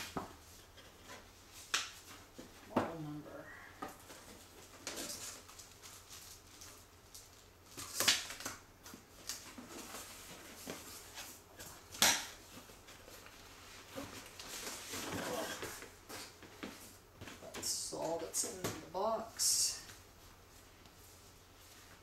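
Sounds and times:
paper and cardboard rustling: 3.9 - 18.7.

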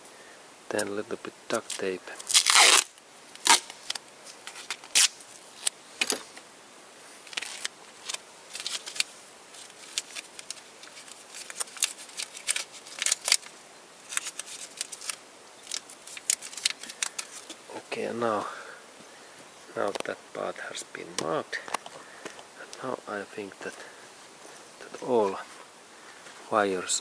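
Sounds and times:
duct tape ripping: 0.7 - 6.3, 7.2 - 17.6
cables rustling: 0.7 - 6.5, 7.2 - 27.0.

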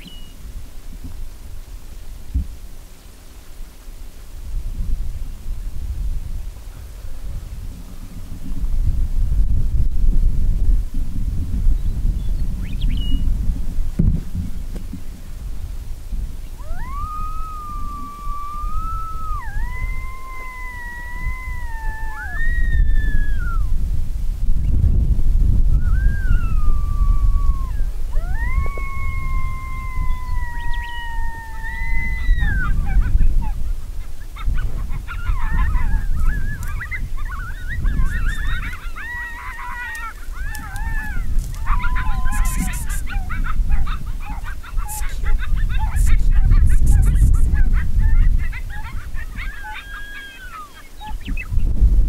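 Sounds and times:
wind rumble on microphone: 0.0 - 52.0
coyote howling: 16.6 - 23.8, 25.8 - 51.4.

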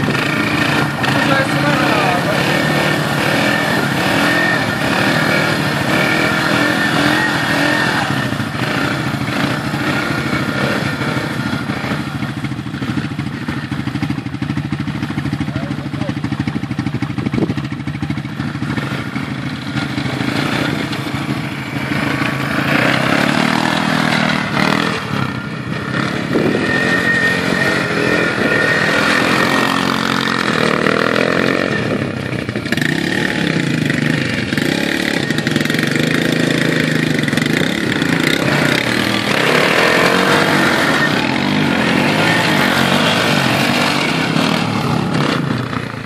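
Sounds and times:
quad bike engine revving: 0.0 - 46.0.

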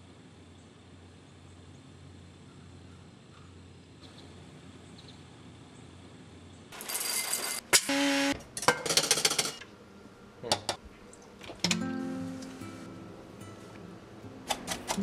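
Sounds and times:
metal container clinking: 6.8 - 7.9
grinder whirring: 6.8 - 8.4.

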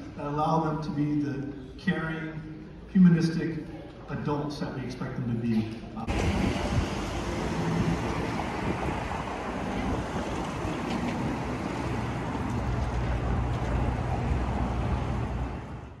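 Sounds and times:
cars rushing past: 6.1 - 16.0
wind buffeting microphone: 6.1 - 16.0.

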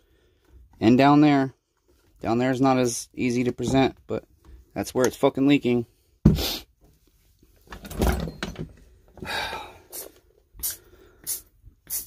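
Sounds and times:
short hissing bursts: 9.9 - 12.0.

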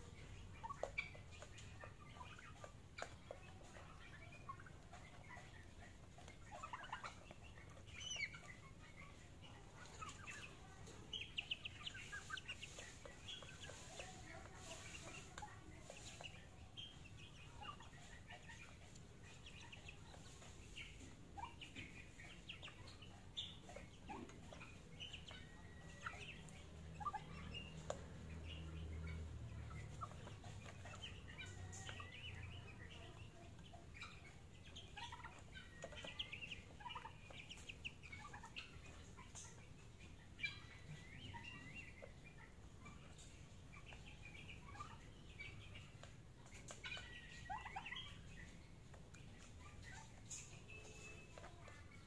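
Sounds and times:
chickens clucking: 0.0 - 52.0
chicks cheeping: 0.0 - 52.0.

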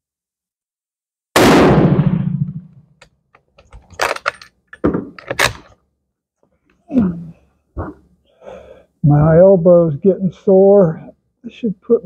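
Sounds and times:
rifle shot: 1.4 - 2.9
rifle bolt clacking: 3.4 - 5.7.

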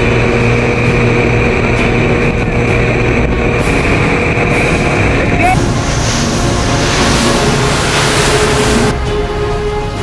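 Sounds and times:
motorboat engine running: 0.0 - 10.0
wind and water rushing: 5.6 - 9.3.

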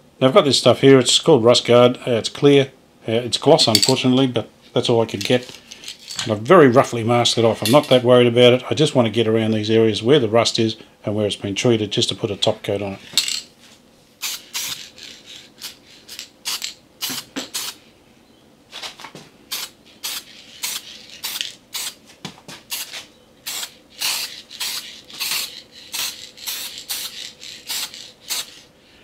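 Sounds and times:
aerosol spray can hissing: 14.2 - 17.8, 19.5 - 22.0, 22.7 - 28.7.

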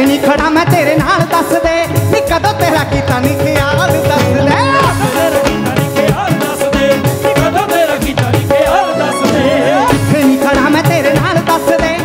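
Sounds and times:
band with steady drum beat: 0.0 - 12.0
man singing into microphone: 0.0 - 12.0.

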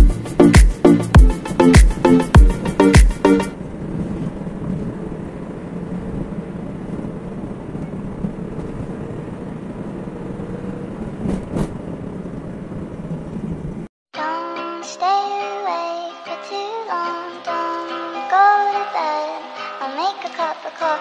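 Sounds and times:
music: 0.0 - 3.6, 14.2 - 21.0
truck engine and road noise: 0.0 - 13.9.

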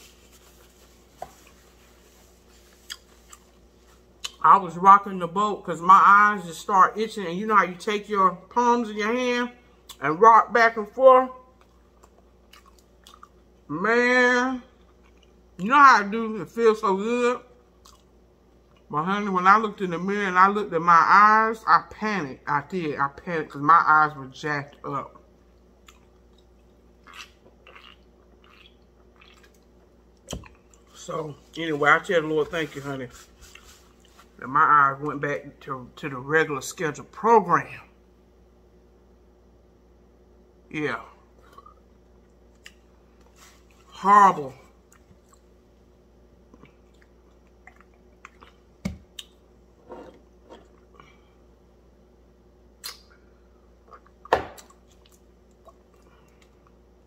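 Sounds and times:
person chewing and swallowing: 2.4 - 4.4, 11.6 - 13.6, 14.8 - 15.5, 17.8 - 18.9, 25.5 - 31.0, 46.5 - 49.4, 53.8 - 56.8.

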